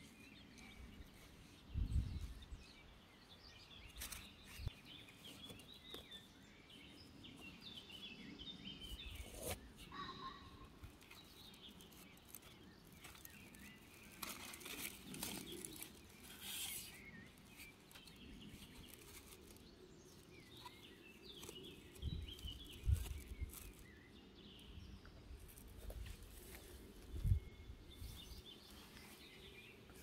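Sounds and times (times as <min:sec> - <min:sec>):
faint birdsong chirps: 0:00.0 - 0:30.0
gloved hands rustling soil: 0:10.8 - 0:30.0.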